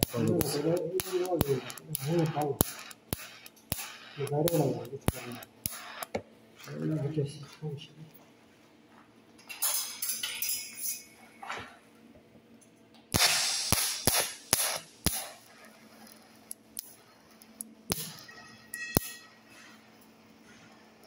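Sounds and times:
welding torch gas hiss: 0.0 - 6.1, 13.1 - 18.4
welding arc snaps and clicks: 0.0 - 6.7, 9.4 - 11.2, 13.0 - 21.0.

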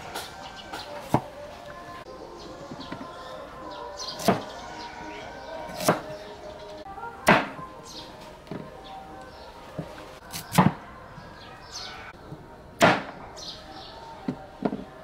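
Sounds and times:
cleaver chopping on wooden block: 5.7 - 6.1, 7.3 - 7.6, 12.8 - 13.1.

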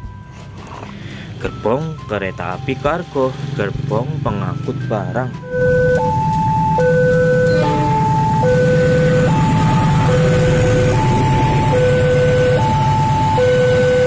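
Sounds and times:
level crossing two-tone alarm: 4.6 - 14.0
diesel freight train rumbling: 6.4 - 14.0.

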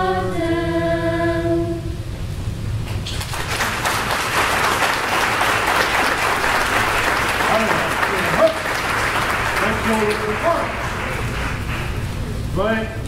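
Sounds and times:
choir holding a chord: 0.0 - 1.8
audience applauding: 2.9 - 12.4.

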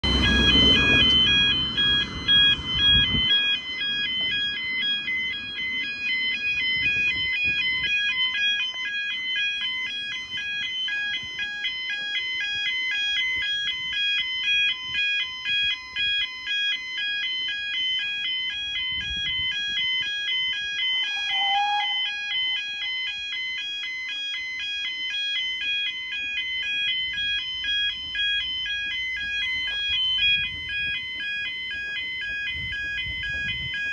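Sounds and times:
low rumble: 0.0 - 5.6
level crossing alarm warbling: 0.0 - 33.9.

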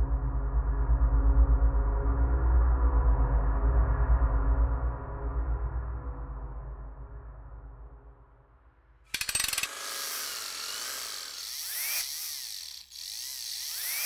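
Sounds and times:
hissing mechanical whir: 9.2 - 14.0
rapid ratcheting clicks: 9.2 - 14.0.

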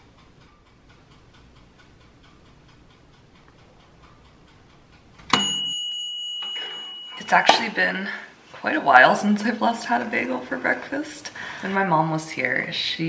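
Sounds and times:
kitchen timer ticking: 0.0 - 13.0
timer bell ding: 5.3 - 8.2.

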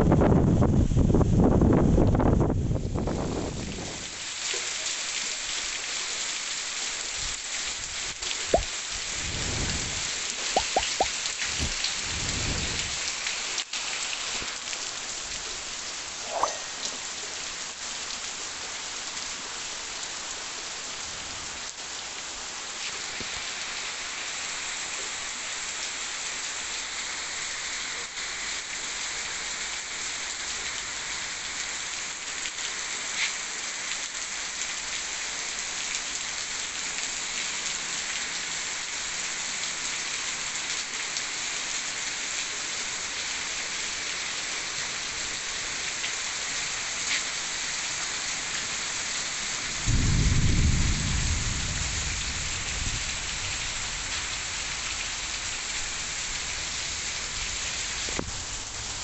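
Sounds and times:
heavy rain on trees: 0.0 - 59.0
sharp taps: 10.6 - 11.7.

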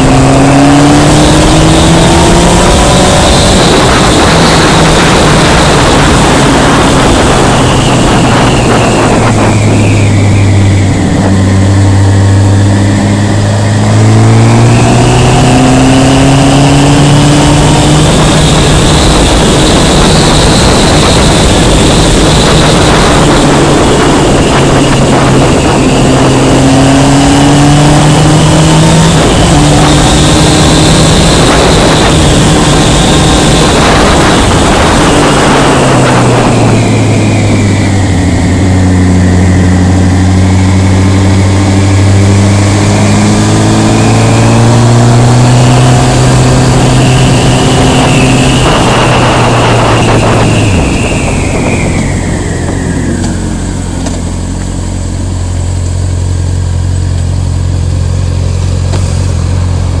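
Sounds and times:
rushing noise surges: 0.0 - 57.0
motorcycle engine revving: 0.0 - 60.0.

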